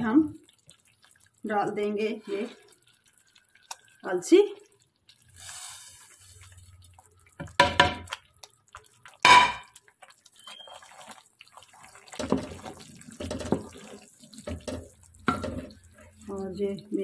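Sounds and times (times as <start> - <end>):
wooden spoon stirring and scraping: 1.8 - 4.0, 5.1 - 9.2, 9.8 - 17.0
knocks on metal pot: 7.4 - 8.1, 9.2 - 9.7, 14.5 - 15.7.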